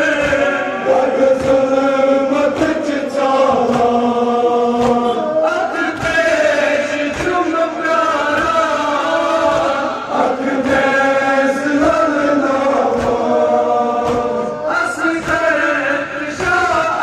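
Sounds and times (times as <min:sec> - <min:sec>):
men chanting in unison: 0:00.0 - 0:17.0.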